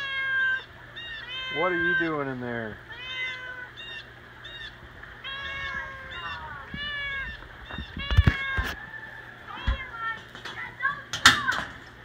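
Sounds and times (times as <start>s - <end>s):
cat meowing: 0.0s - 2.2s, 2.9s - 8.8s.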